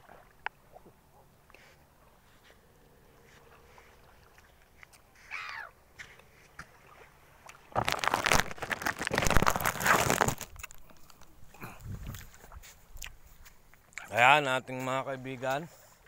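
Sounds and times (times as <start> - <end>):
gull call: 5.2 - 5.8.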